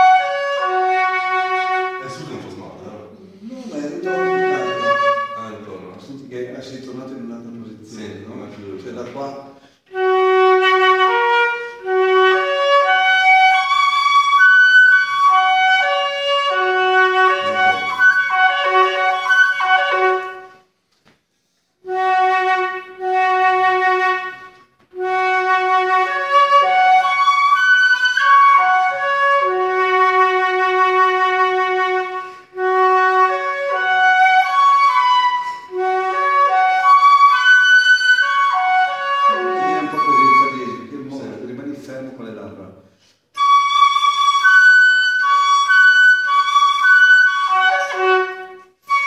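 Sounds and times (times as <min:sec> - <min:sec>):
reed instrument melody over drone: 0:16.6 - 0:20.1.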